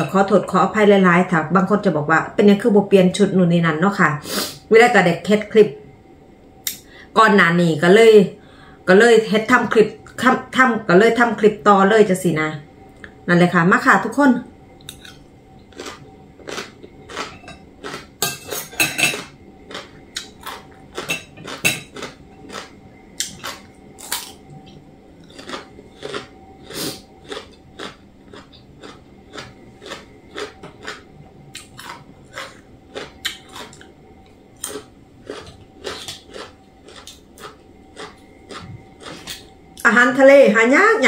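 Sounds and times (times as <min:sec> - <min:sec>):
chewing: 0:14.8 - 0:18.2, 0:19.1 - 0:39.5
cutlery clinking on a plate: 0:18.2 - 0:19.3.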